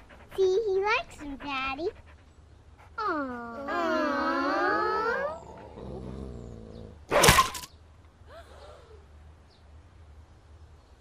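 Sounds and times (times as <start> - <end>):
dog whining: 3.0 - 7.0
dog growling: 3.0 - 7.1
dog roaring snarl: 3.5 - 7.2.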